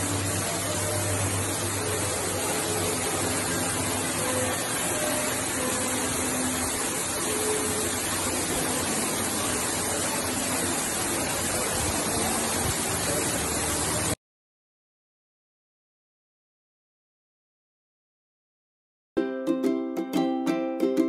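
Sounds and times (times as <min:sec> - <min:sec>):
waterfall rushing: 0:00.0 - 0:14.2.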